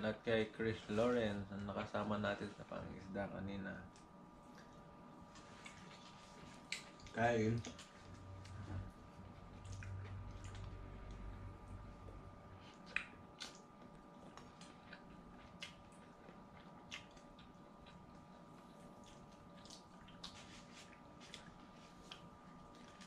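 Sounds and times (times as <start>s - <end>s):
faint steady hum: 0.0s - 23.0s
chewing clicks and smacks: 5.4s - 8.6s, 9.4s - 11.3s, 12.6s - 23.0s.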